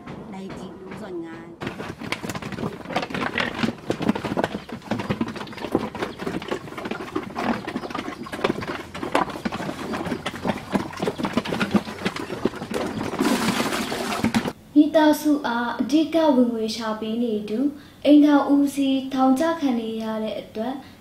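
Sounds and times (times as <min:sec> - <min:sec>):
pigs chomping feed: 0:01.6 - 0:14.6.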